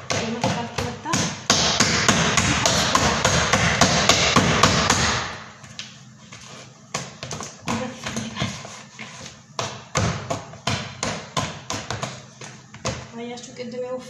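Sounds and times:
hand slapping dough in a bowl: 6.8 - 13.1.

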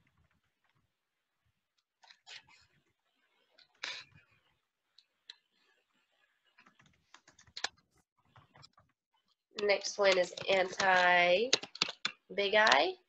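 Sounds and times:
mouse and keyboard clicks: 9.6 - 12.8.

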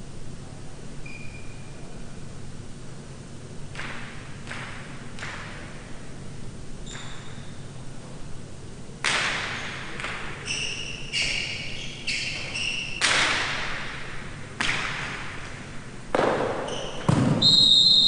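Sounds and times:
short high squeaks: 1.0 - 1.8, 10.4 - 13.0
ball cracking off walls: 16.1 - 17.4.

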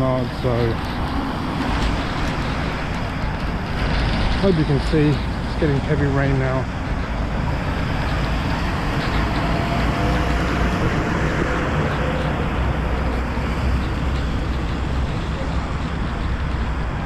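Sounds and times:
tyres on wet road: 0.0 - 17.0
heavy rain hiss: 3.7 - 6.8.

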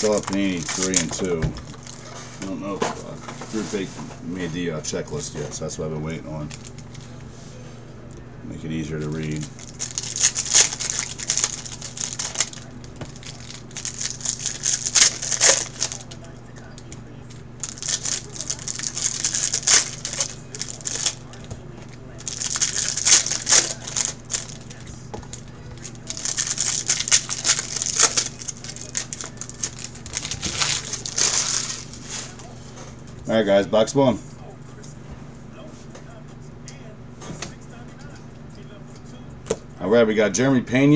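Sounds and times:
foil wrapper crinkling: 0.0 - 2.3, 6.4 - 7.2, 8.9 - 32.5.

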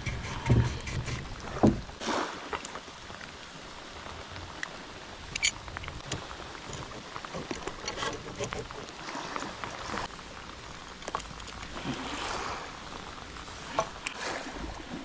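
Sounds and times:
metallic clicks: 5.3 - 8.6.

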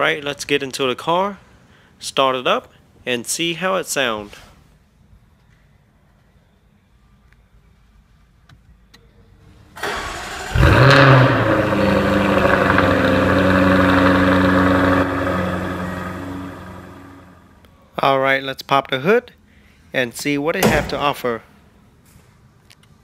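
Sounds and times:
car engine starting and idling: 9.8 - 17.4.

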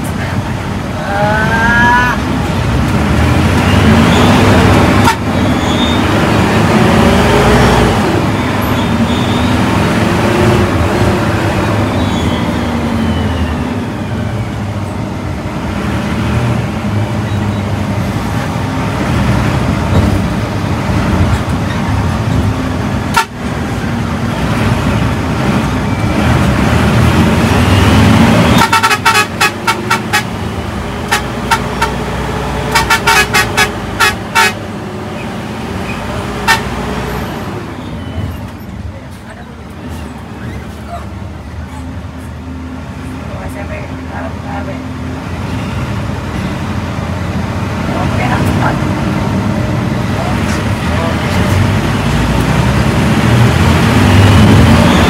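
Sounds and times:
bus engine accelerating: 0.0 - 55.0
road noise: 0.0 - 55.0
horn short blasts: 28.5 - 30.3, 32.7 - 34.6.

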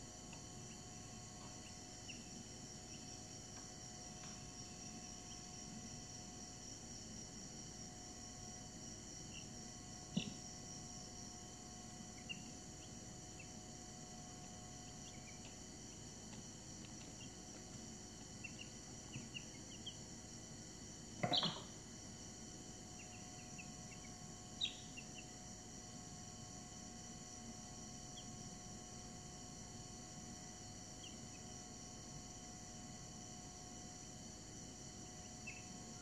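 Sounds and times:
faint high-pitched whine: 0.0 - 36.0
chicks peeping: 12.2 - 13.6, 18.4 - 20.0, 23.0 - 25.3.

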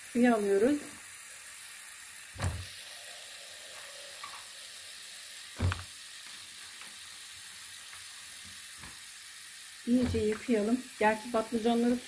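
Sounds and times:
soft thump: 2.4 - 2.7, 5.6 - 5.9
tap running into bowl: 5.6 - 5.9, 9.9 - 10.6.

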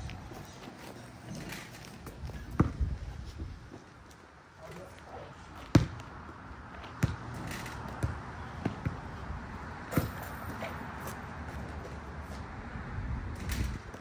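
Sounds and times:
basketball bouncing on court: 2.5 - 2.8, 5.6 - 6.1, 6.9 - 9.1.

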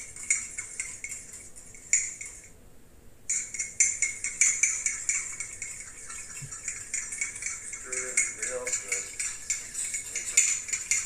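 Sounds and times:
utensil clinking against a mug: 3.3 - 11.0.

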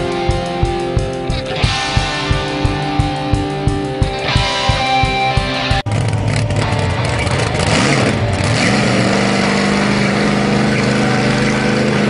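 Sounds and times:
off-road buggy engine revving: 5.6 - 12.0.

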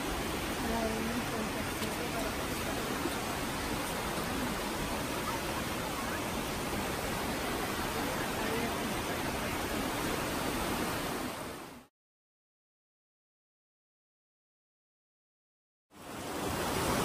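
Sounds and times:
mountain stream rushing over rocks: 0.0 - 11.9, 16.0 - 17.0.

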